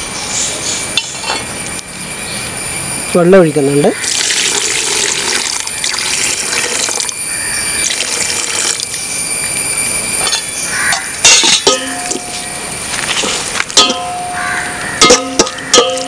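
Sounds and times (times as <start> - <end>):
water pouring into pot: 4.0 - 9.0
ladle clinking against pot: 10.2 - 12.4, 13.2 - 14.4, 15.0 - 16.0.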